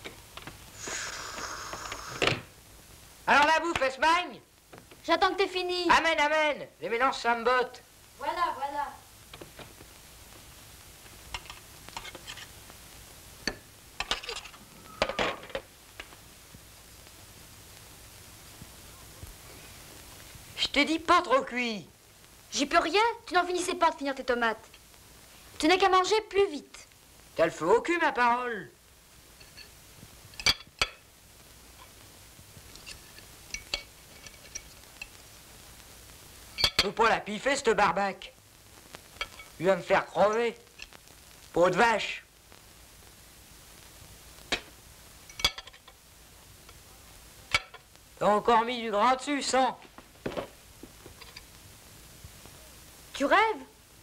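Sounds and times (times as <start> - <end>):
frying pan and utensil scraping: 11.3 - 12.6, 13.4 - 15.6, 29.4 - 29.8.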